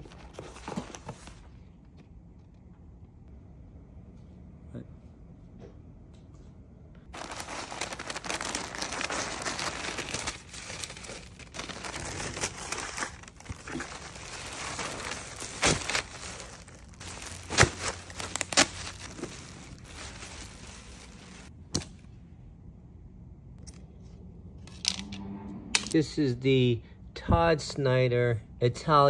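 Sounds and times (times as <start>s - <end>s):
plastic bag and tissue paper crinkling: 0.0s - 1.5s, 7.1s - 21.5s.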